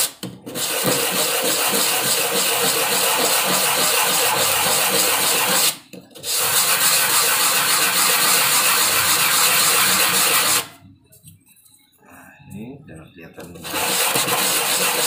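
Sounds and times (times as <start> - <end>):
wood sanding rasp: 0.5 - 10.7, 13.6 - 15.0.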